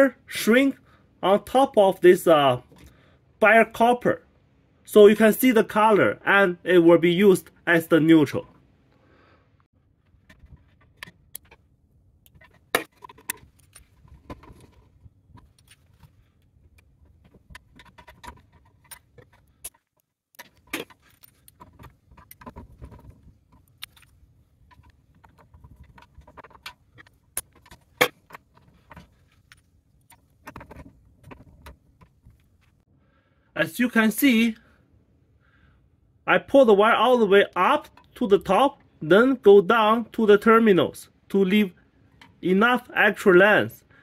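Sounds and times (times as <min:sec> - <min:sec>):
wires rustling: 0:09.8 - 0:32.9
metallic clicks and knocks: 0:10.0 - 0:32.8.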